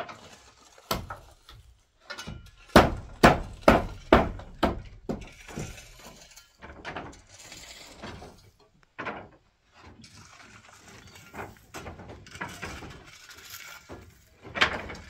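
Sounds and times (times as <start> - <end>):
heavy knocks: 2.7 - 5.9.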